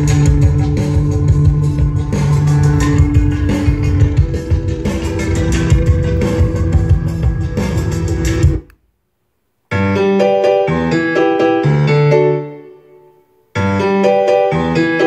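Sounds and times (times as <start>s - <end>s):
piano music through speakers: 0.0s - 8.7s, 9.7s - 15.0s
guitar music: 0.1s - 8.6s.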